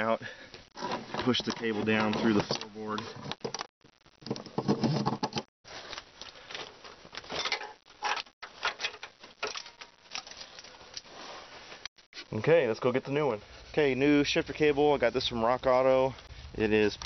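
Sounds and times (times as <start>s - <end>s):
cable rustling and scraping: 0.6s - 12.4s.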